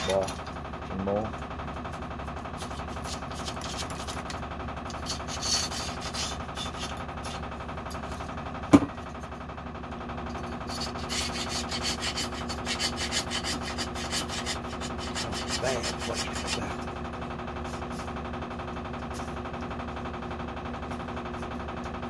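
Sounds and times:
scratchy scrubbing on metal bar: 2.6 - 7.4, 10.6 - 16.8.

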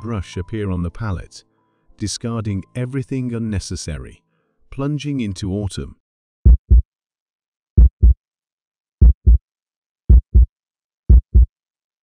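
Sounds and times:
heartbeat thumps: 6.4 - 6.8, 7.8 - 8.2, 9.0 - 9.4, 10.1 - 10.5, 11.1 - 11.5.

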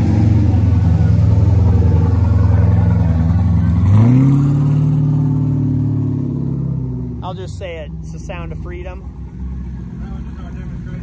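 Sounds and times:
loud vehicle engine revving: 0.0 - 11.0.

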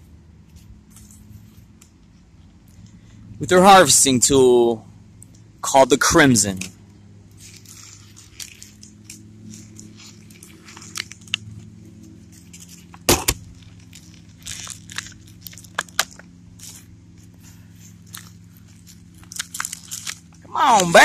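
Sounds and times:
steady low hum: 0.0 - 21.0
plastic packaging crinkling: 7.4 - 11.4, 12.3 - 16.9, 17.8 - 21.0.

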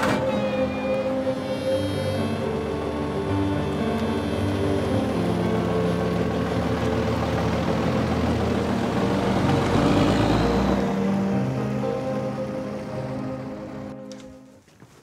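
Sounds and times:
coach driving past: 0.0 - 13.9.

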